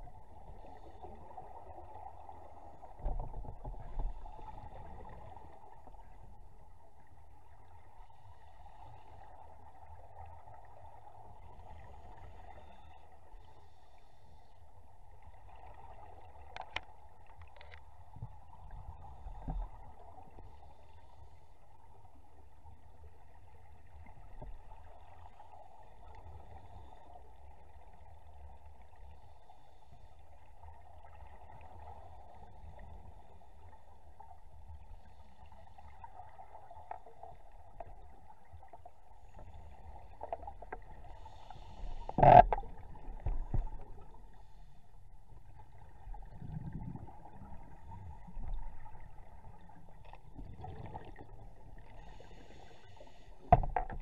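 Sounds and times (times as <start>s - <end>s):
muffled underwater hum and rumble: 0.0s - 54.0s.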